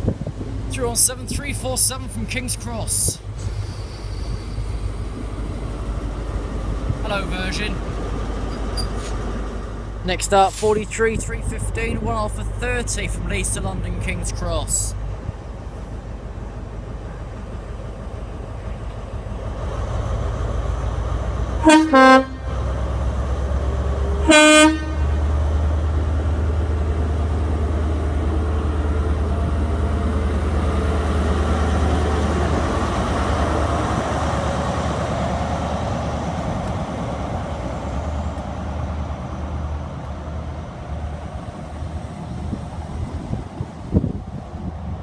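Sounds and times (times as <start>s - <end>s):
diesel engine rumbling: 0.0s - 45.0s
train coaches rolling past: 0.0s - 45.0s
train horn blasts: 21.6s - 22.5s, 24.2s - 25.2s.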